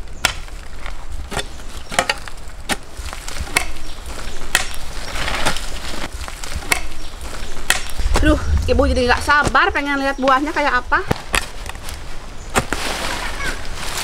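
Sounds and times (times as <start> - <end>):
leaves rustling: 0.0 - 14.0
plant stalks cracking and snapping: 0.2 - 8.3.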